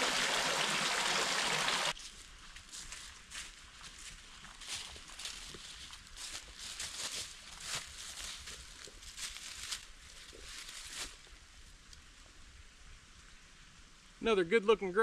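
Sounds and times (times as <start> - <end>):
footsteps through dry leaves: 2.0 - 11.3.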